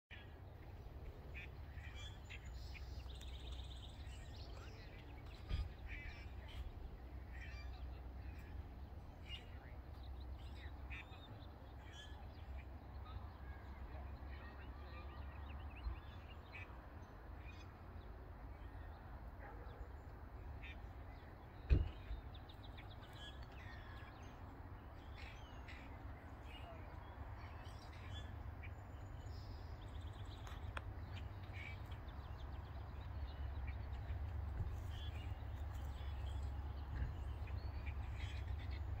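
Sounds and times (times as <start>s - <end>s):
birds calling: 0.1s - 39.0s.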